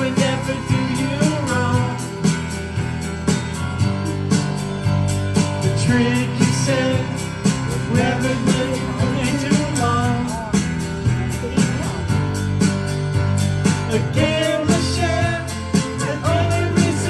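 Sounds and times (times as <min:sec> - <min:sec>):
song with guitar and beat: 0:00.0 - 0:17.0.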